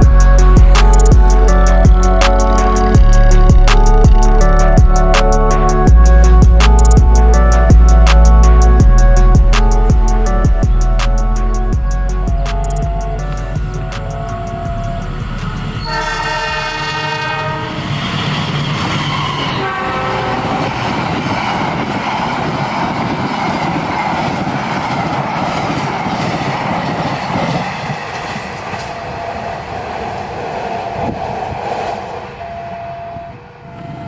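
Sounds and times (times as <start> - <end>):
locomotive horn blasts: 14.2 - 18.3, 19.1 - 20.8, 32.2 - 34.0
train wheels clattering on rails: 20.3 - 31.6.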